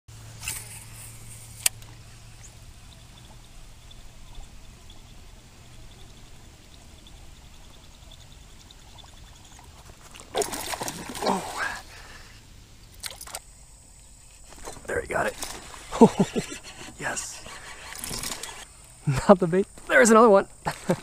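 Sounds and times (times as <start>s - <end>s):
low steady hum: 0.1s - 19.8s
lure churning and gurgling on water: 8.4s - 12.1s, 14.4s - 18.7s.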